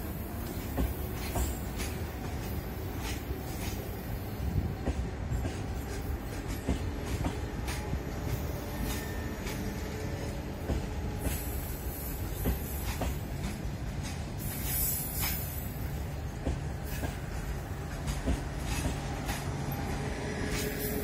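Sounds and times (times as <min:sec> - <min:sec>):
train rumbling over rails: 0:00.0 - 0:21.0
wheels clicking over rail joints: 0:12.2 - 0:21.0.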